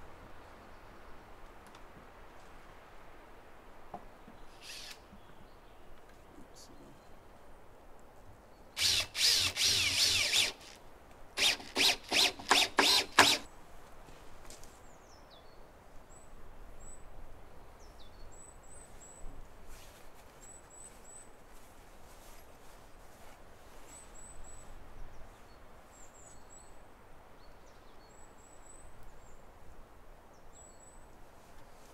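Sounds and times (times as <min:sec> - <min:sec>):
power drill whining into wood: 0:04.6 - 0:05.0, 0:08.8 - 0:10.8, 0:11.4 - 0:13.5.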